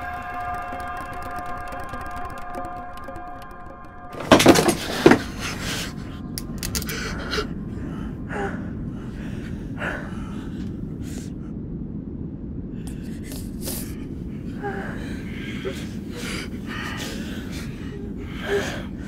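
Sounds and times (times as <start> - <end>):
low steady rumble: 0.0 - 19.0
woman gasping and sobbing: 14.4 - 19.0.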